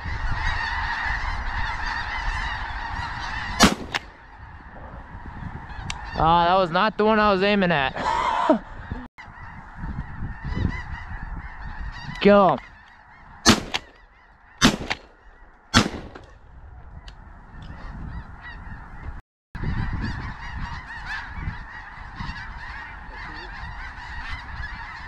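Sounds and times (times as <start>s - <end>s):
flock of geese calling: 0.0s - 25.0s
shotgun blasts: 3.6s - 4.2s, 13.4s - 14.0s, 14.6s - 16.4s.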